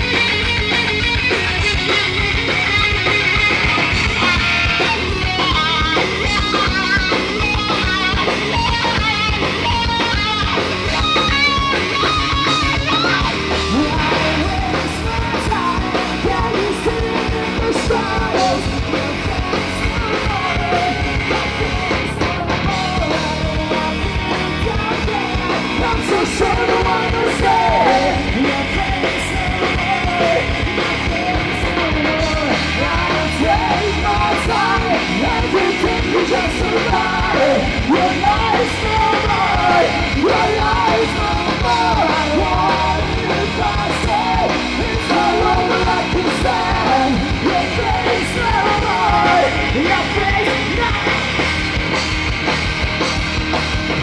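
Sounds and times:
bass guitar: 0:00.0 - 0:54.0
distorted electric guitars: 0:00.0 - 0:54.0
drum kit: 0:00.0 - 0:54.0
man singing: 0:03.9 - 0:51.5.

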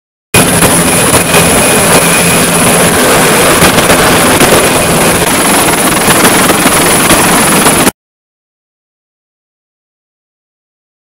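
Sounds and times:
helicopter rotor and engines: 0:00.4 - 0:08.0.

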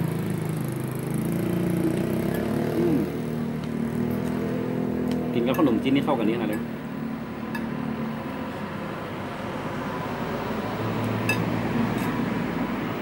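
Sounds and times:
road traffic: 0:00.0 - 0:13.0
metal spoon clinking bowl: 0:07.5 - 0:07.7, 0:11.2 - 0:12.2.

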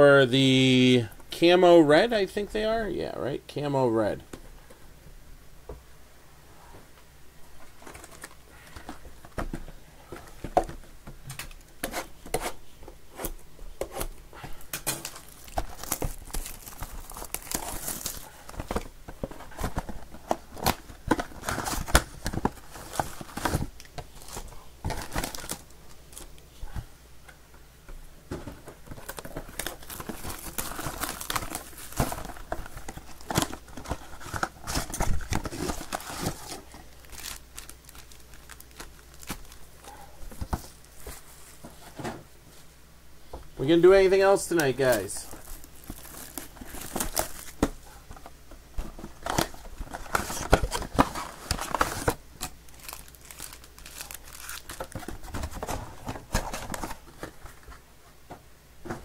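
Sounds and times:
plastic wrap crumpling: 0:14.8 - 0:26.3, 0:28.9 - 0:41.6, 0:44.5 - 0:48.2, 0:48.9 - 0:57.7
plastic shrink wrap tearing: 0:14.9 - 0:18.4, 0:29.0 - 0:39.6, 0:45.2 - 0:47.6, 0:49.3 - 0:55.2
cardboard boxes handled: 0:28.2 - 0:42.3, 0:45.0 - 0:52.2.

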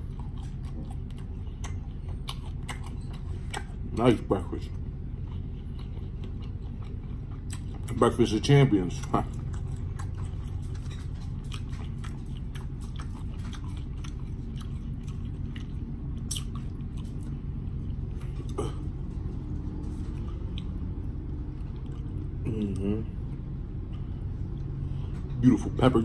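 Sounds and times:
person chewing: 0:00.0 - 0:25.4
steady low hum: 0:00.0 - 0:26.0
wet mouth clicks: 0:16.2 - 0:16.7.

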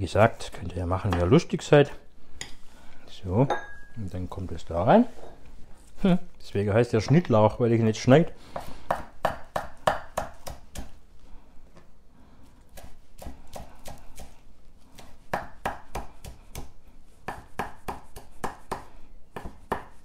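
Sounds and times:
knife chopping on wooden board: 0:08.5 - 0:10.9, 0:15.0 - 0:20.0.

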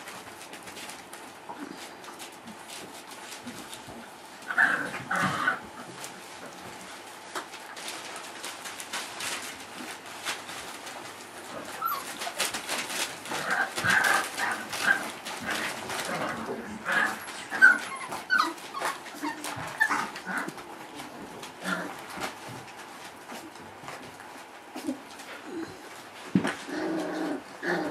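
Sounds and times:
newspaper crinkling: 0:05.8 - 0:25.0
puppies whimpering and yipping: 0:11.6 - 0:21.1.

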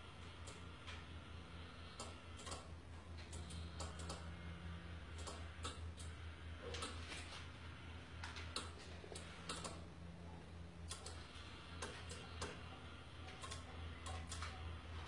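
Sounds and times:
steady low hum: 0:00.0 - 0:15.0
small motor ticking and clicking: 0:01.9 - 0:04.3, 0:10.9 - 0:12.6, 0:13.3 - 0:14.5.

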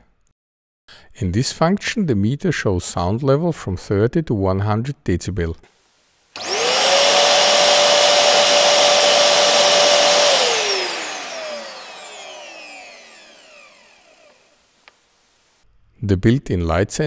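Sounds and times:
vacuum cleaner motor whining: 0:06.4 - 0:14.6.

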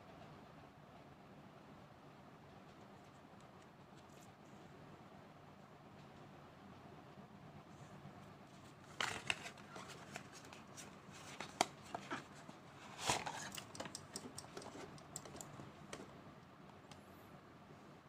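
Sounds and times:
hands handling cardboard box: 0:08.6 - 0:13.9.

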